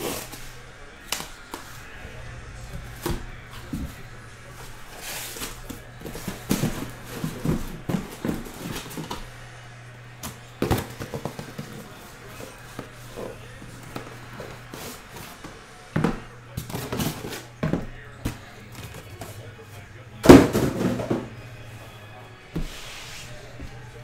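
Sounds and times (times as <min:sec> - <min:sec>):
cardboard rustling and scraping: 0:00.0 - 0:09.4
boxes knocking and thudding: 0:01.1 - 0:09.4, 0:10.2 - 0:12.0, 0:20.2 - 0:21.4.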